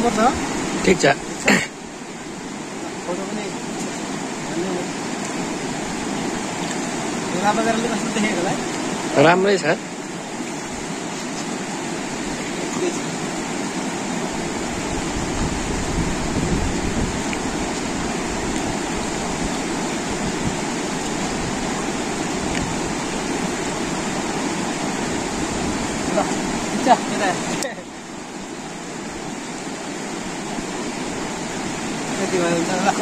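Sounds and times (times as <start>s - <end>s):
river rushing over stones: 0.0s - 33.0s.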